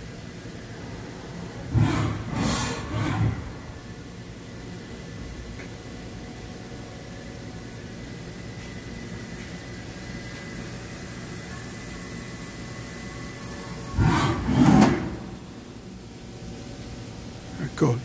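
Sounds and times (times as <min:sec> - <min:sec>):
machining center humming: 0:00.0 - 0:18.0
loud burst of noise: 0:01.3 - 0:04.3, 0:13.8 - 0:16.0.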